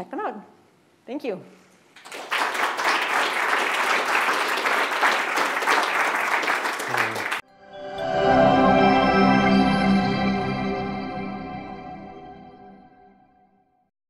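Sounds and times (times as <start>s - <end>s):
audience applauding: 2.0s - 7.4s
music: 7.4s - 13.9s.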